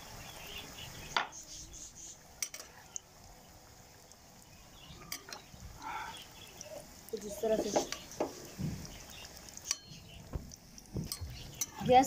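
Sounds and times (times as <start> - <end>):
deep-frying sizzle: 0.0 - 12.0
metal spoon clinking on pan: 2.4 - 2.8, 9.6 - 10.1, 11.0 - 11.9.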